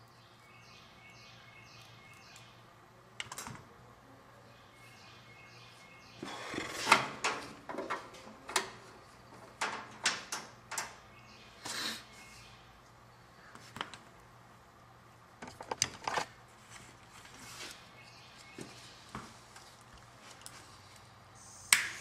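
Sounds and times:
clicks knocks and rustles of wiring: 0:03.2 - 0:03.7, 0:06.8 - 0:11.0, 0:13.5 - 0:14.2, 0:15.4 - 0:17.4.

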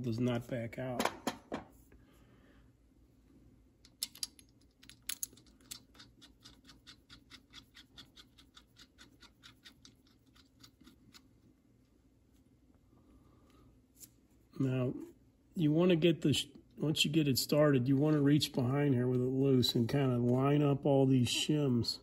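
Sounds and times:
metal clicks of bolt: 0:03.8 - 0:06.1.

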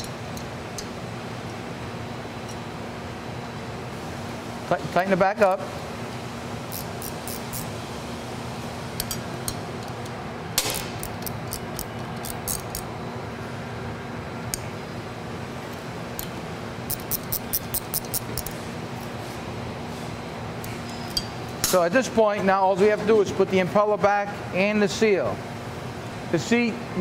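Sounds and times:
steady low hum: 0:00.0 - 0:27.0
metal parts clinking: 0:10.7 - 0:12.9.

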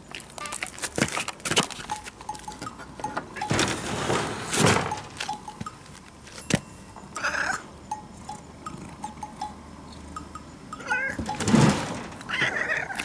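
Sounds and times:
cat meowing: 0:10.8 - 0:11.2, 0:12.3 - 0:13.0.

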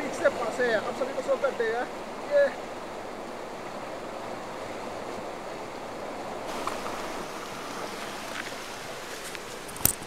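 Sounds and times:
river rushing: 0:00.0 - 0:10.0.

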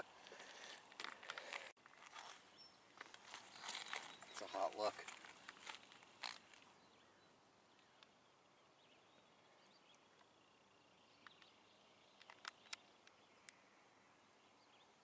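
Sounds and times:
small sharp clicks: 0:11.2 - 0:13.6.

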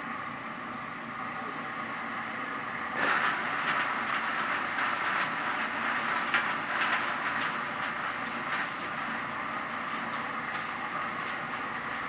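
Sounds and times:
leaf shredder rushing noise: 0:02.9 - 0:12.0.

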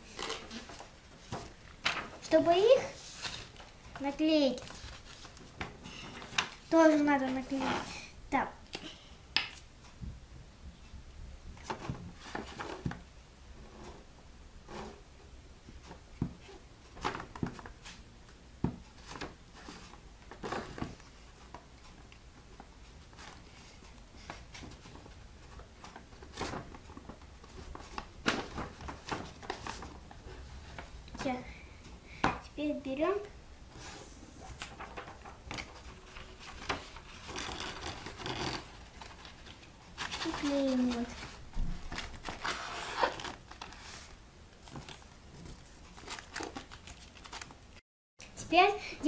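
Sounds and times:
paper rustling and rubbing: 0:00.0 - 0:03.7, 0:04.5 - 0:08.0, 0:24.5 - 0:30.9, 0:33.7 - 0:47.6
paper scrapes: 0:07.3 - 0:08.1, 0:36.1 - 0:38.8, 0:42.2 - 0:44.2.

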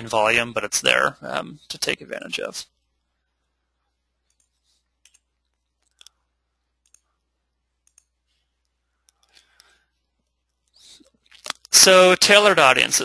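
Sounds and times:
faint clicks: 0:04.2 - 0:06.2, 0:06.8 - 0:07.2, 0:07.8 - 0:11.7.

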